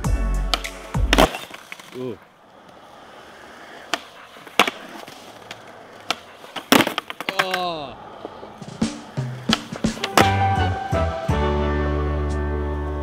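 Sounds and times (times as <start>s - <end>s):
skateboard rolling on concrete: 0.0s - 13.0s
skateboard clacks: 0.5s - 10.5s.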